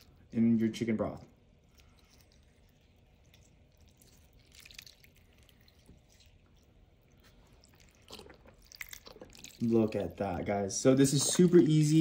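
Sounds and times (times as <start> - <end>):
broth dripping and splashing: 1.4 - 10.2.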